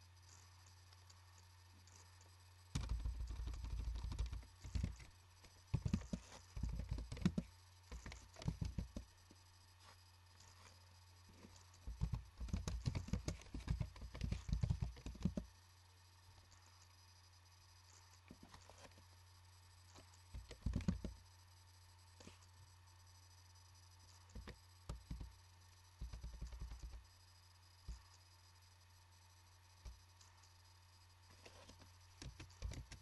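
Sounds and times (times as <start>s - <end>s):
steady low hum: 0.0s - 33.0s
typing on computer keyboard: 2.7s - 5.1s, 5.7s - 9.2s, 11.4s - 15.5s, 20.3s - 21.2s, 24.3s - 25.4s, 26.0s - 27.0s, 32.2s - 33.0s.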